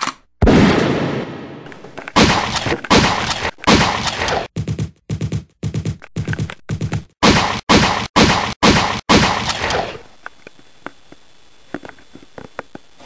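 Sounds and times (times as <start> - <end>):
handgun shots: 2.2 - 4.5, 7.2 - 10.0.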